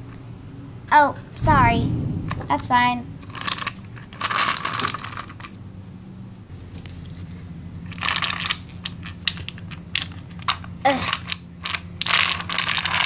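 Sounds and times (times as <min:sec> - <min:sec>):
toy car wheels grinding on concrete: 0:10.9 - 0:13.0.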